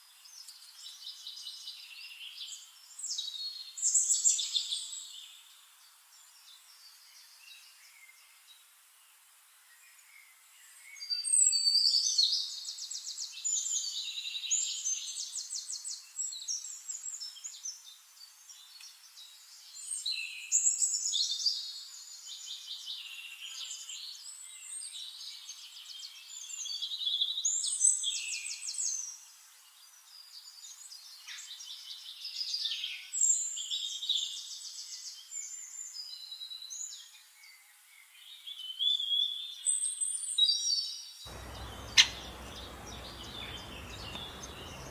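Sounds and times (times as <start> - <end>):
small birds chirping: 12.8 - 44.9.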